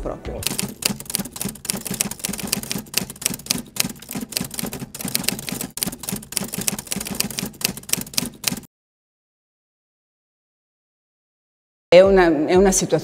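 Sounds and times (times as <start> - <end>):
typewriter key clacks: 0.4 - 8.7.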